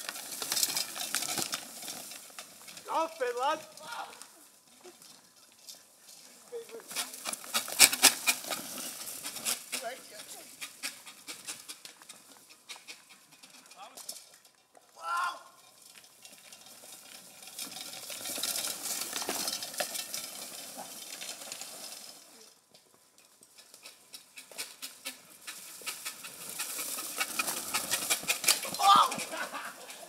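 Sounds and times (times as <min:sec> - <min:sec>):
bicycle tyres on dry leaves: 0:00.0 - 0:30.0
person shouting: 0:03.4 - 0:04.2, 0:15.0 - 0:15.5, 0:28.8 - 0:29.2.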